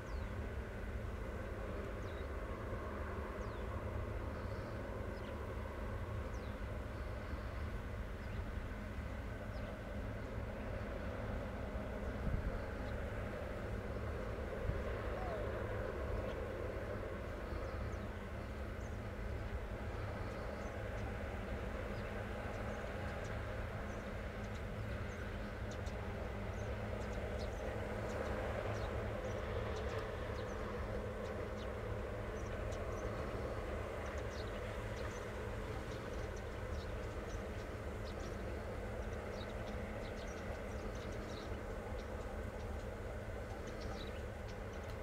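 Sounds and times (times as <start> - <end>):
low outdoor rumble: 0.0 - 45.0.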